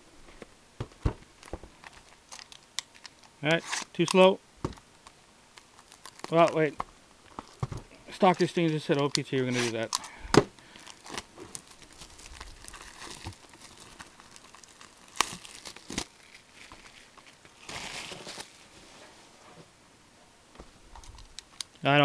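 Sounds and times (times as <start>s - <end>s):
cardboard and wrapping rustling: 10.7s - 19.5s.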